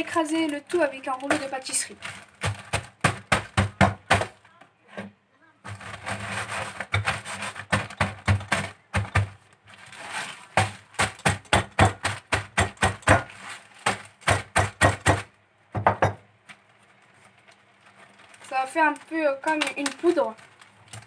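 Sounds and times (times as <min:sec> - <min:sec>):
rolling pin pounding cookies: 0:01.2 - 0:04.4, 0:05.7 - 0:09.5, 0:10.5 - 0:16.2.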